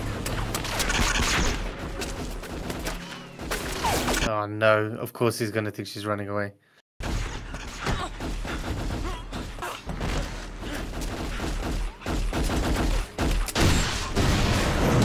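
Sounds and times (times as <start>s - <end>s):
sharp gunshots: 7.0s - 15.0s
people grunting in a struggle: 8.9s - 10.0s, 10.6s - 11.0s.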